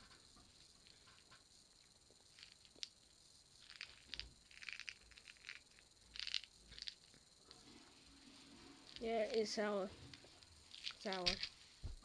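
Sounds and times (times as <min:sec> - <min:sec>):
crinkly rustles: 0:03.6 - 0:12.0.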